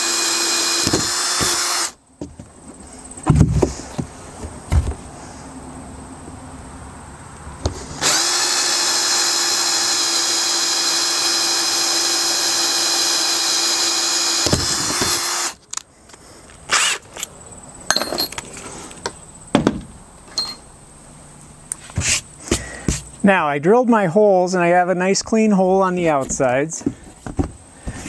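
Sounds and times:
cordless drill boring plastic: 0.0s - 2.0s, 8.0s - 15.6s.

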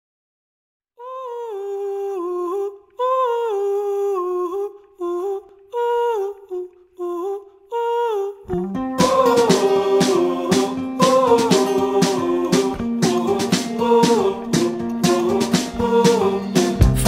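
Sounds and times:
person humming slow melody: 1.0s - 10.6s.

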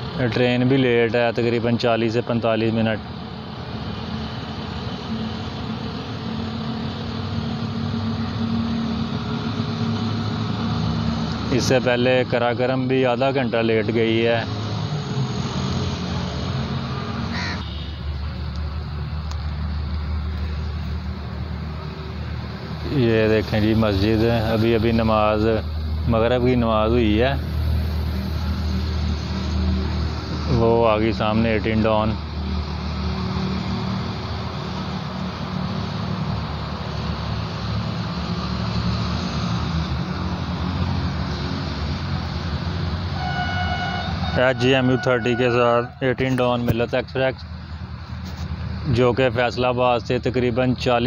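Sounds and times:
noisy hiss: 17.4s - 32.2s.

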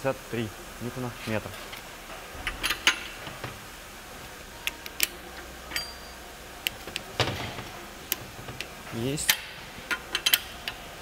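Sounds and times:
hand wrench clicking on bolts: 9.2s - 10.8s.

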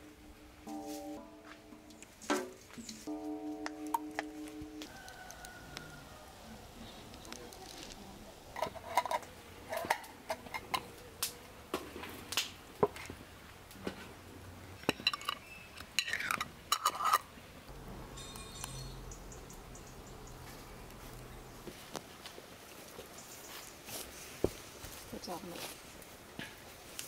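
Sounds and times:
glass jars and lids clinking: 14.8s - 17.2s, 17.8s - 19.8s.

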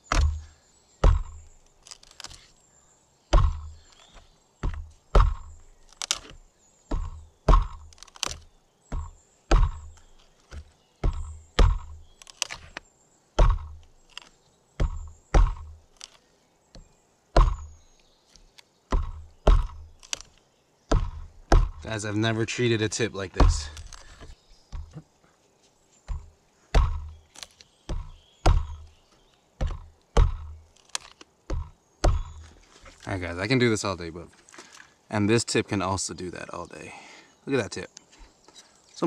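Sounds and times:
knife stabbing into log: 0.0s - 2.4s, 3.3s - 12.8s, 13.4s - 16.2s, 23.4s - 25.0s, 26.1s - 28.9s, 29.6s - 32.6s.

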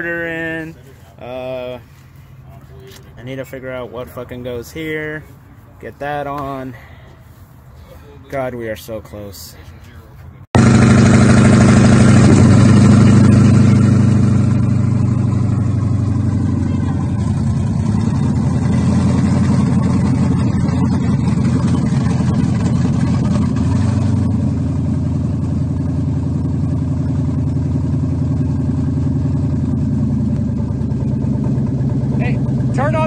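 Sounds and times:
car engine idling: 10.6s - 33.0s.

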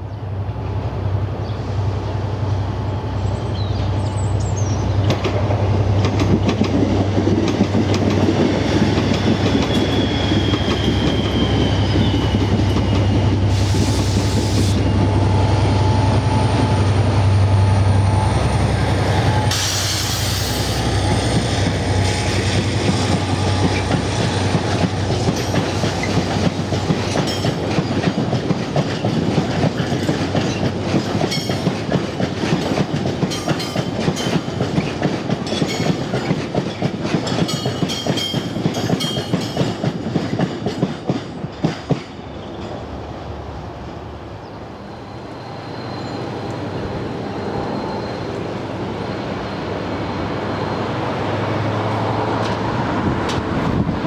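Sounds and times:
diesel locomotive engine drone: 0.0s - 54.0s
faint squeal: 9.3s - 16.9s, 44.4s - 51.4s
short hisses: 19.5s - 20.9s
wheels clacking over rail joints: 21.3s - 42.8s.

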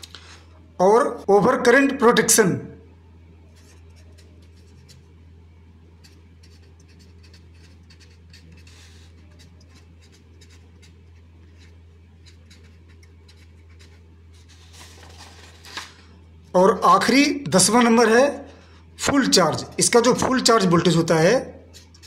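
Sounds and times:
steady low hum: 0.0s - 22.0s
pen scratching on paper: 3.6s - 5.1s, 6.0s - 14.8s.

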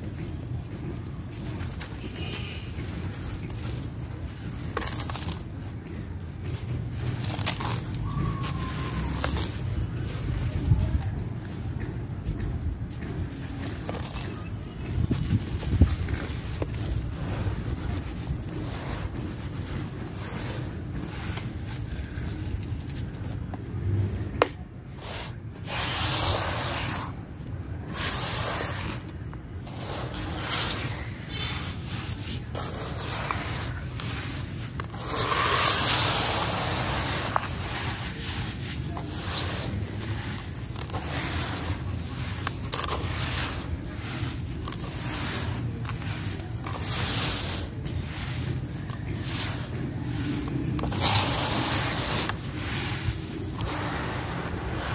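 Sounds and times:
hands raking gritty sand: 0.0s - 54.9s
dirt and pebbles pouring onto pile: 29.7s - 54.9s.

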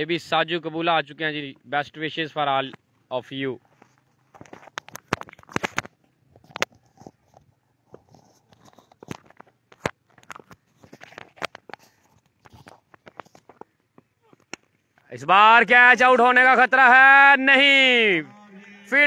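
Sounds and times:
sharp clicks and crackles: 3.9s - 14.8s.

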